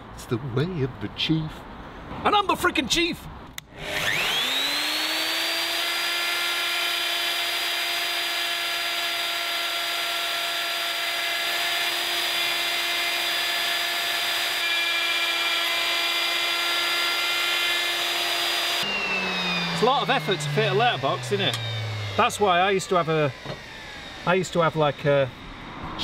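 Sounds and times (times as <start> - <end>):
router whining: 3.6 - 26.0.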